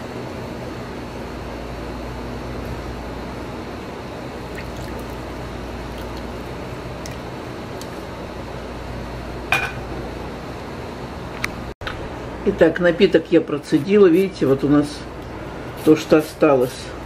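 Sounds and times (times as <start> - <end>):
liquid pouring into a jar: 4.5 - 7.4.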